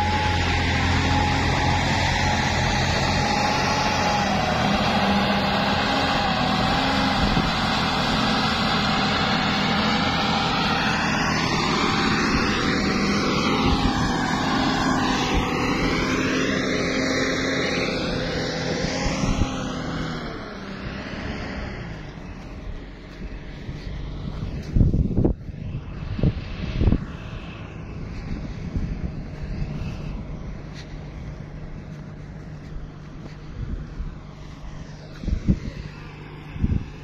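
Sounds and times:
diesel truck engine running: 0.0s - 37.0s.

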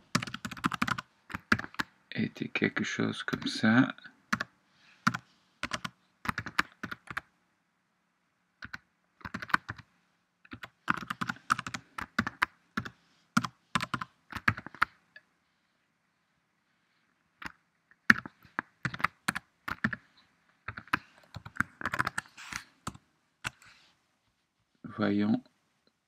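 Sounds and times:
typing on computer keyboard: 0.1s - 1.9s, 5.1s - 7.3s, 8.6s - 9.8s, 10.5s - 15.0s, 17.4s - 20.0s, 20.7s - 23.6s.

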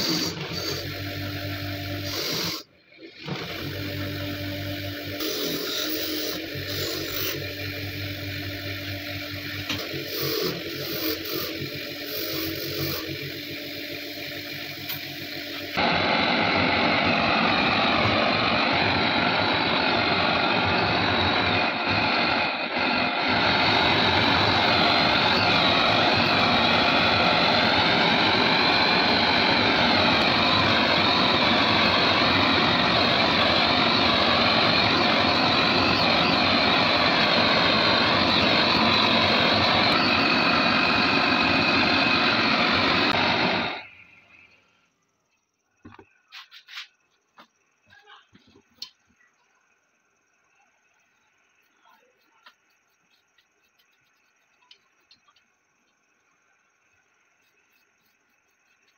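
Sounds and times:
wire wheel grinder spinning: 0.0s - 15.8s, 17.5s - 43.8s
gas torch roaring: 0.0s - 44.5s.

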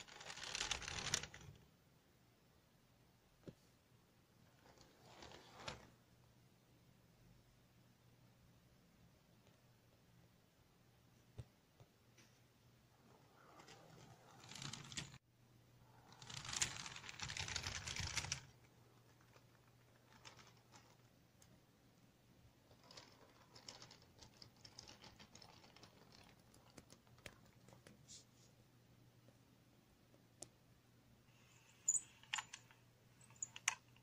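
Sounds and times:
toy tram clicking rattle: 0.0s - 1.4s, 16.1s - 18.5s, 22.6s - 26.9s.

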